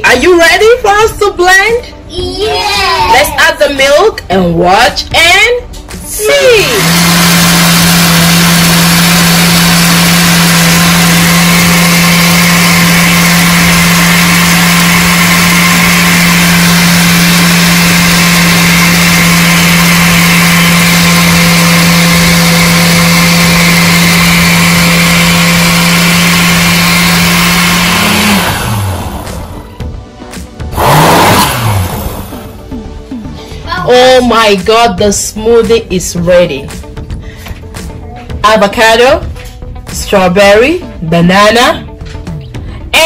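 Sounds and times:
blender motor running: 6.1 - 29.7, 30.7 - 32.6.

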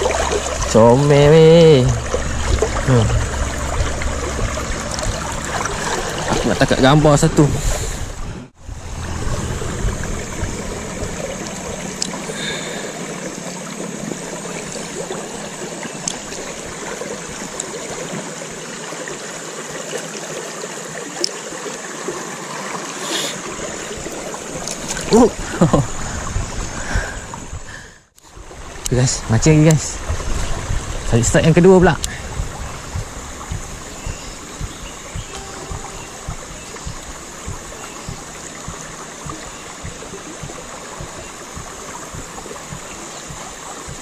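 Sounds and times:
river water rushing over rocks: 0.0 - 27.6.

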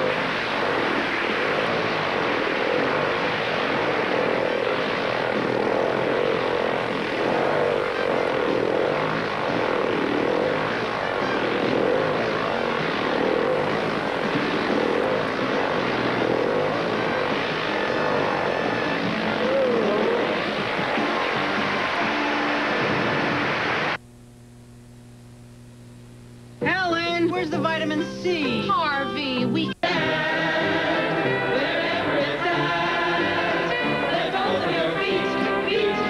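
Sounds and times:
motorcycle engines revving: 0.0 - 24.0.

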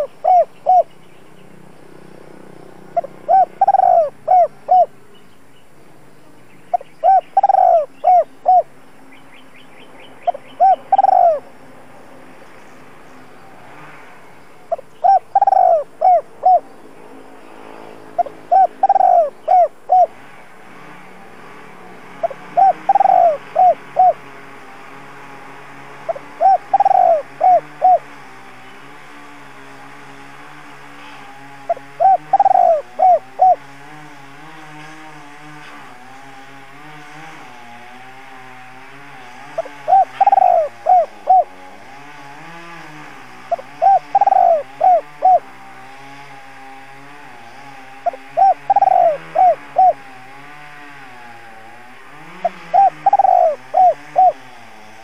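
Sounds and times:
dove cooing: 0.0 - 1.0, 2.8 - 5.0, 6.7 - 8.7, 10.2 - 11.5, 14.7 - 16.8, 18.0 - 20.3, 22.2 - 25.0, 26.0 - 28.2, 31.0 - 33.7, 39.2 - 41.9, 43.4 - 45.5, 48.0 - 50.2, 52.2 - 54.5
faint high bird chirps: 6.3 - 11.4.

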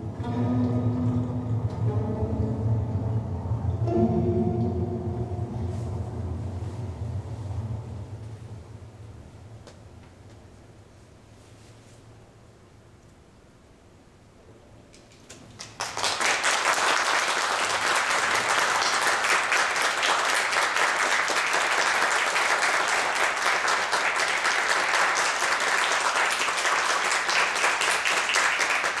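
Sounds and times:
audience applauding: 15.4 - 29.0.

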